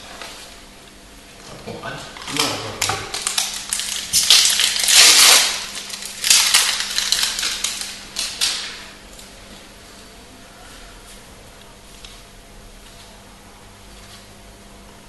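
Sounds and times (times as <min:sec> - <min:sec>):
foil wrapper crinkling and tearing: 0:02.2 - 0:09.3.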